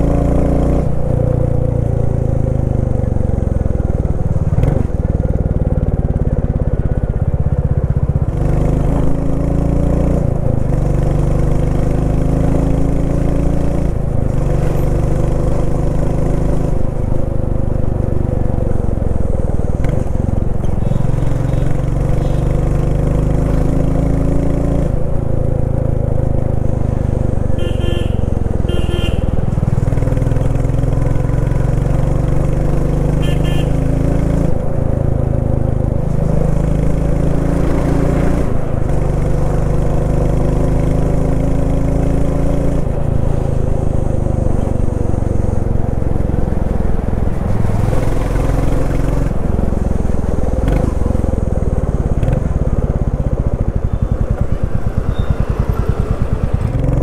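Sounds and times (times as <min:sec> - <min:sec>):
short horn beeps: 0:27.6 - 0:29.3, 0:33.2 - 0:33.8.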